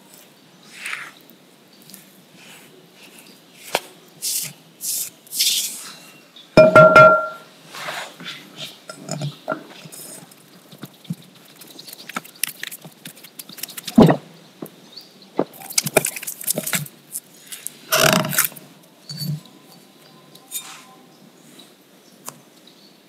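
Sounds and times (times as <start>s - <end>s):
hands kneading dough in a bowl: 9.6s - 14.0s.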